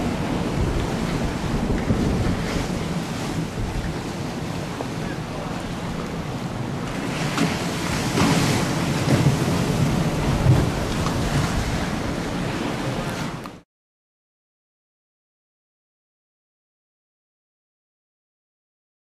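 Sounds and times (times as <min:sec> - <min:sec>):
waves washing: 0:00.0 - 0:13.6
wind buffeting microphone: 0:00.0 - 0:13.6.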